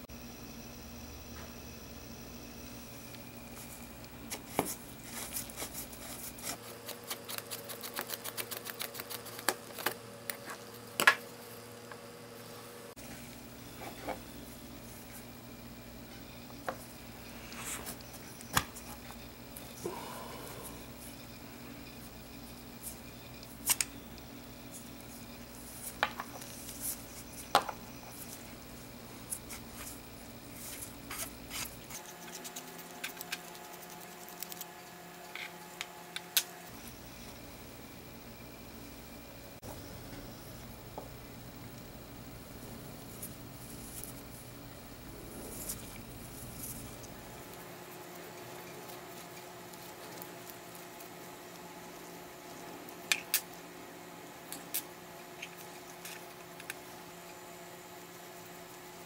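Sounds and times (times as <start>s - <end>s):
faint steady hum: 0.0s - 59.0s
rubbing and handling: 3.4s - 9.7s, 24.7s - 34.4s.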